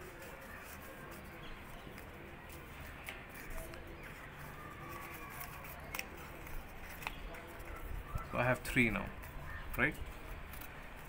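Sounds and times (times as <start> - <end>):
paper rustling and creasing: 0.0 - 11.0
sharp paper crackles: 0.0 - 11.0.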